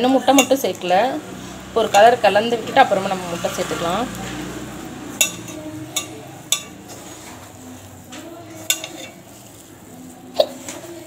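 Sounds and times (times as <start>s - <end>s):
hand mixing crumbly food: 0.0s - 11.0s
metal clinks against bowl: 0.3s - 0.6s, 5.2s - 6.8s.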